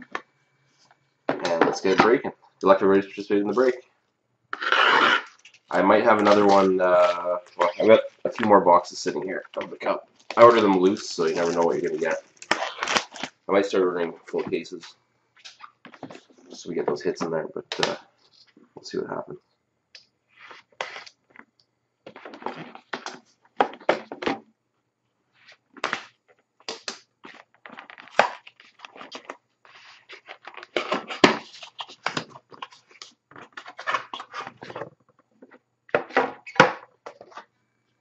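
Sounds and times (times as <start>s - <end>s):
plastic seal rustling and tearing: 9.5s - 13.5s, 26.8s - 36.6s.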